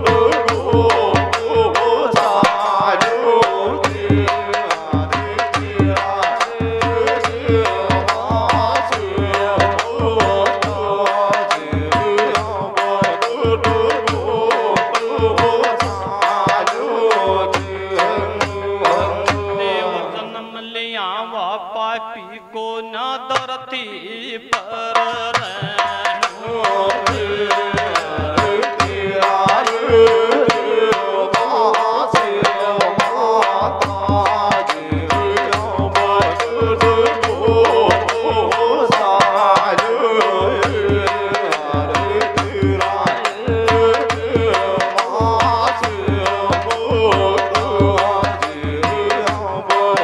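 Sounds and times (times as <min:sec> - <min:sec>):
frame drum: 0:00.0 - 0:19.6, 0:32.1 - 0:50.0
quick drum beat: 0:00.0 - 0:19.6, 0:25.0 - 0:50.0.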